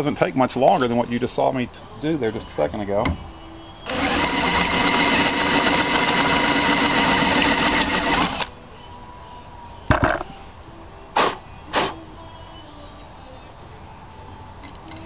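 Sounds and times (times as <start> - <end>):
electric drill running: 3.9 - 8.5.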